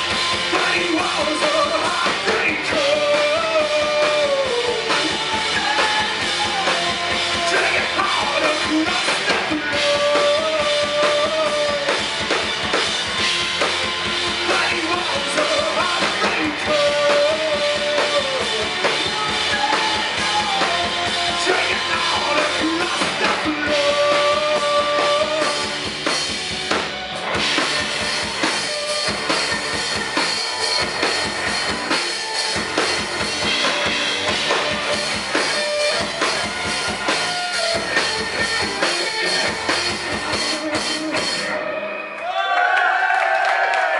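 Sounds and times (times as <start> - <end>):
drum kit beat: 0.0 - 41.6
rock band playing: 0.0 - 42.8.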